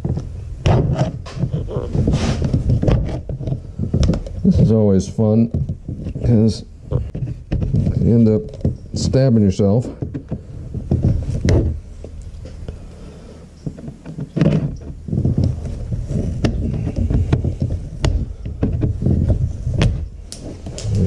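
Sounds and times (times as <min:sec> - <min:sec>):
sharp clicks and knocks: 0:00.0 - 0:04.8, 0:13.6 - 0:21.0
plastic tool scraping and prying: 0:00.0 - 0:21.0.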